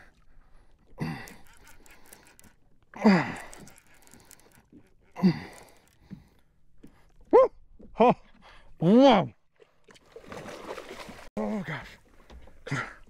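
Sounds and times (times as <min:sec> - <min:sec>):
faint ticks: 0:01.0 - 0:07.0.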